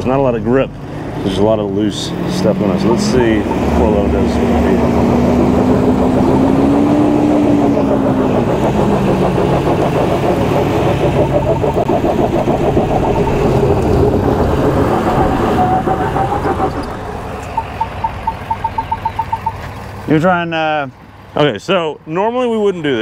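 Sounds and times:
tires scrabbling on loose dirt: 0:00.0 - 0:20.2
diesel truck engine working hard: 0:00.0 - 0:23.0
short electronic beeps: 0:17.4 - 0:19.8.

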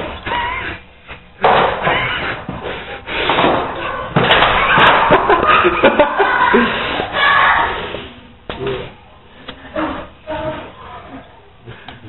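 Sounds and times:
dog banging against door: 0:03.3 - 0:05.5.

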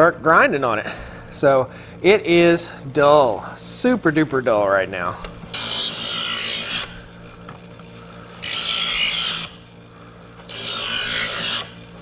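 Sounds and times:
knife sharpener motor humming: 0:02.9 - 0:12.0
blade grinding rasp: 0:03.0 - 0:12.0.

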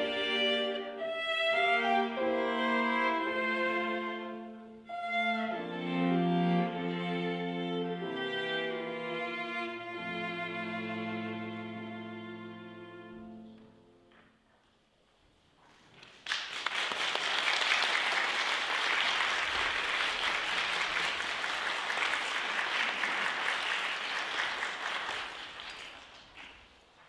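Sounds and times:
cellos holding a chord: 0:00.0 - 0:14.2
audience applause: 0:15.9 - 0:26.9.

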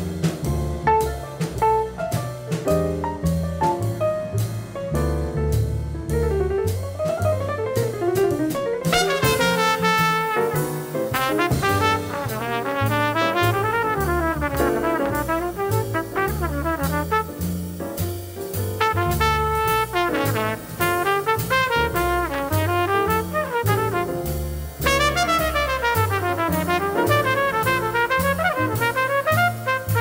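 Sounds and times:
piano: 0:00.0 - 0:30.0
walking double bass: 0:00.0 - 0:30.0
horn playing lead: 0:08.9 - 0:17.3, 0:18.8 - 0:24.2, 0:24.8 - 0:30.0.

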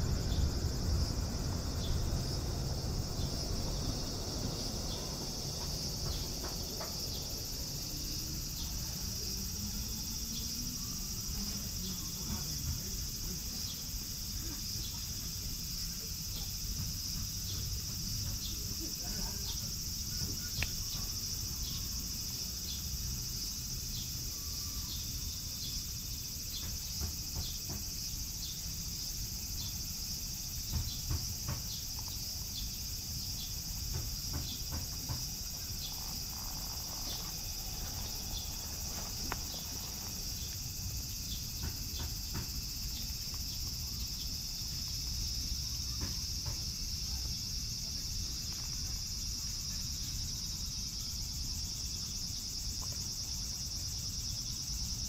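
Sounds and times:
low rumble: 0:00.0 - 0:08.4, 0:35.2 - 0:41.5
insects chirping: 0:00.0 - 0:55.0.

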